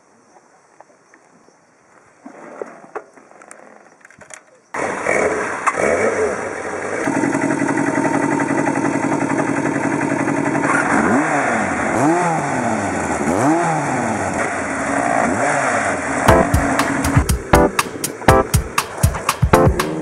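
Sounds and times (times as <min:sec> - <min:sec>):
motorcycle engine revving: 0:04.8 - 0:18.6
motorcycle engine idling: 0:06.4 - 0:10.7.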